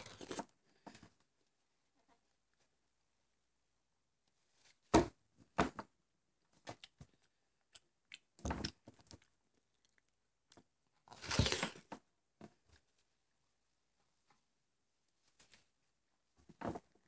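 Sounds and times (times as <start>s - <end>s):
person chewing watermelon: 11.1s - 11.8s.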